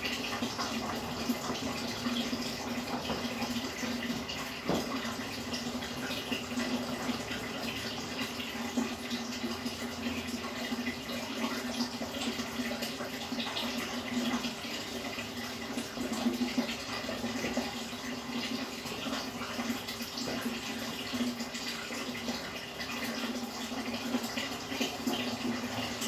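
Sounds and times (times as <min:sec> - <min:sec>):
water trickling and bubbling: 0:00.0 - 0:26.0.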